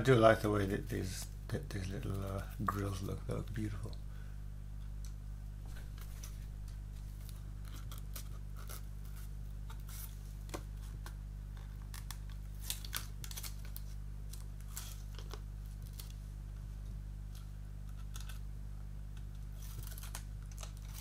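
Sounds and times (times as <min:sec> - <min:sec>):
low hum: 0:00.0 - 0:21.0
plastic film crinkling: 0:05.7 - 0:16.3, 0:19.3 - 0:21.0.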